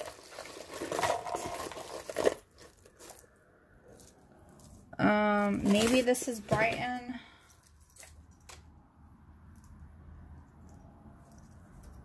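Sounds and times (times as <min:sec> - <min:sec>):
packaging rustling and crinkling: 0:00.0 - 0:03.2, 0:05.6 - 0:07.0.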